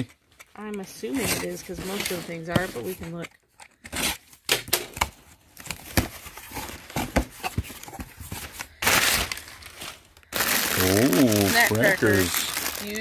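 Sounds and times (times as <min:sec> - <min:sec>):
cardboard clicks and scrapes: 0:01.1 - 0:09.0
cardboard ripping tear: 0:08.8 - 0:13.0.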